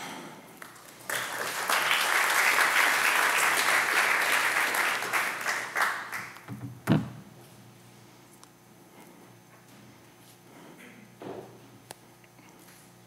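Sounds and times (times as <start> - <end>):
audience applauding: 0.6 - 6.5.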